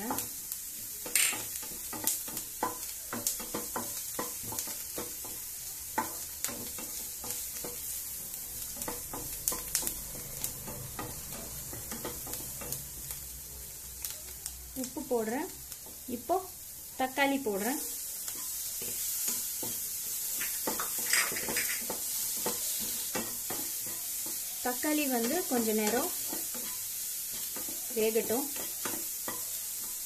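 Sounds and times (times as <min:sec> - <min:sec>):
onions sizzling in butter: 0:00.0 - 0:30.0
wooden spatula scraping pan: 0:18.8 - 0:24.0.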